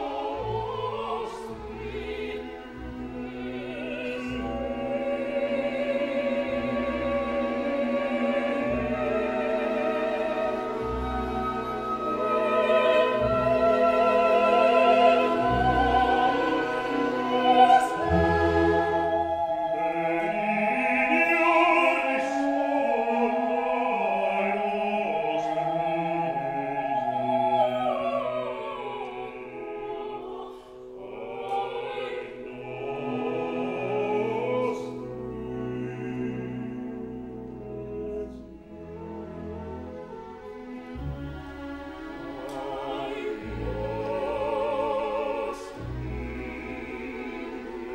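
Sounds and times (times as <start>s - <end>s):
choir singing with vibrato: 0.0s - 47.9s
sustained accompaniment: 0.0s - 47.9s.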